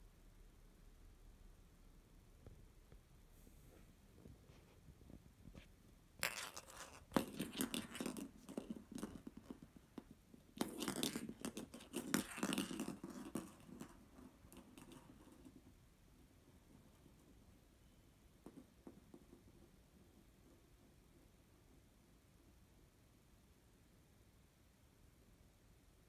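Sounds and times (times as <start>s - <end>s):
plastic ball rolling on wooden floor: 6.2s - 15.6s.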